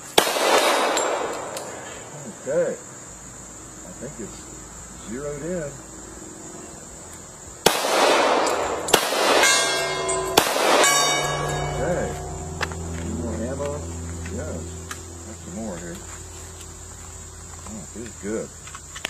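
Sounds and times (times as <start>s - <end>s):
pistol shots: 0.0s - 1.8s, 7.6s - 11.7s
insects droning: 0.0s - 19.0s
steel targets ringing: 0.2s - 1.8s, 7.7s - 15.6s.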